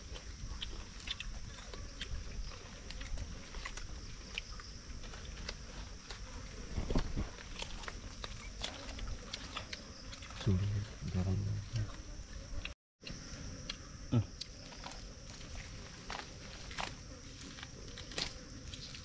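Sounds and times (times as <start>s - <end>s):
leaf plates rustling: 14.6s - 19.0s.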